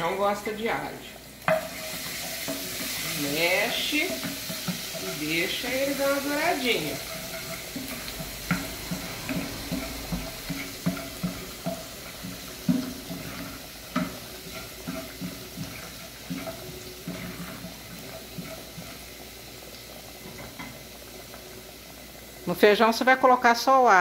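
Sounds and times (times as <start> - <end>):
water sloshing in a pot: 0.0 - 23.0
spoon scraping and knocking a pan: 1.4 - 19.3.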